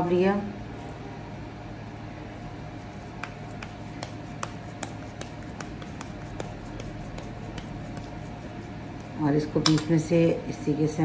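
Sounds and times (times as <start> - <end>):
low background hum: 0.0 - 11.0
hands patting meat patty: 3.0 - 9.8.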